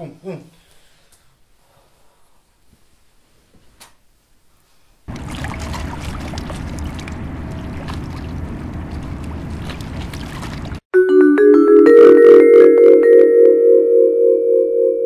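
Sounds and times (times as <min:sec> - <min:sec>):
outboard engine droning: 0:05.1 - 0:10.8.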